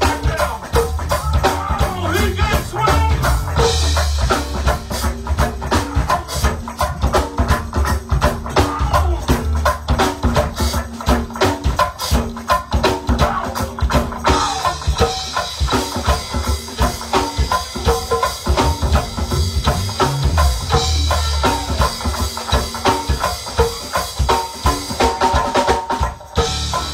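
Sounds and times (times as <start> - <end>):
bass line: 0.0 - 11.2, 16.2 - 23.1, 26.4 - 26.9
congas: 0.0 - 26.9
drum kit beat: 0.0 - 26.9
live band playing: 0.0 - 26.9.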